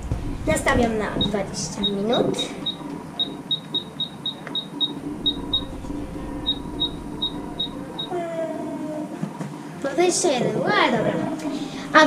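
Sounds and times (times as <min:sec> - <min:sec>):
oven timer beeping: 0:01.2 - 0:08.2.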